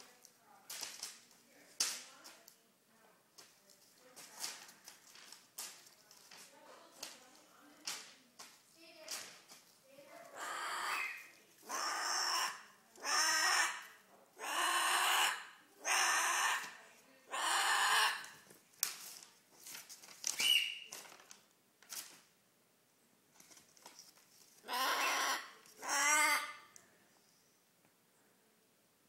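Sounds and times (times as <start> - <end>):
cockatoo squawking: 10.3 - 18.4, 24.6 - 26.7.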